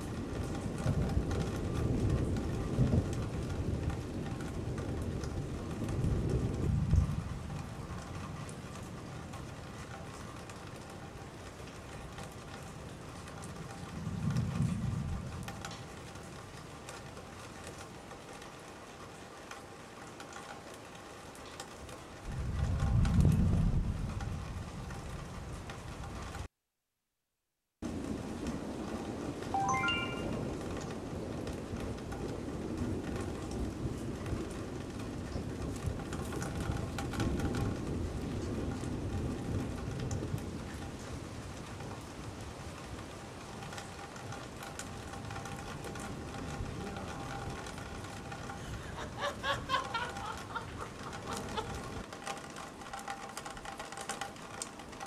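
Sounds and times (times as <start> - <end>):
steady rain pattering: 0.0 - 26.5, 27.8 - 55.0
thunder rumble: 0.1 - 8.2.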